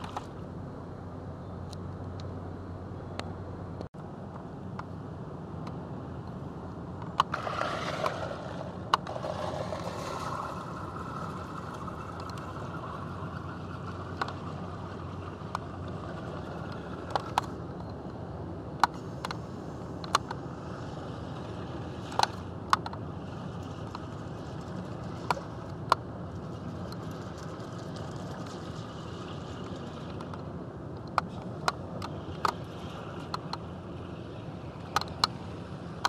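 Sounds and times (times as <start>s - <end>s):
steady low rumble: 0.0s - 36.0s.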